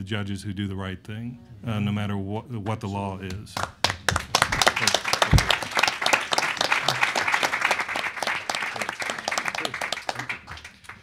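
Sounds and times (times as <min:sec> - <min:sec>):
audience applause: 0:03.6 - 0:11.0.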